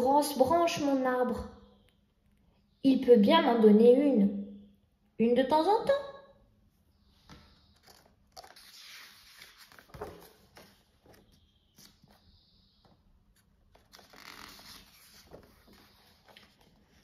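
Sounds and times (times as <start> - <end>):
paper page turning: 7.7 - 12.2, 13.7 - 17.0.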